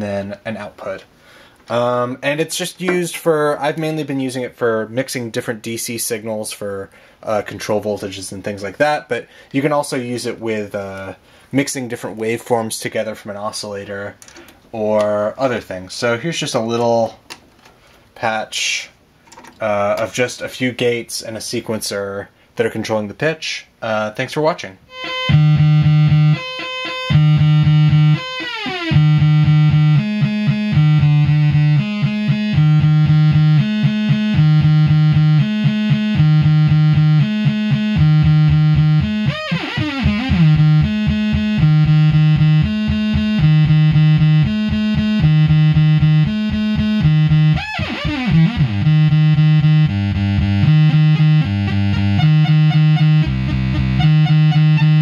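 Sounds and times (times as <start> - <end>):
modular synthesizer sequence: 24.9 - 55.0.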